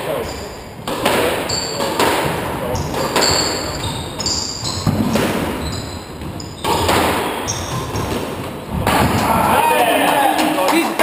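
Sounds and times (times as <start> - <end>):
squash ball knocks: 0.8 - 9.4.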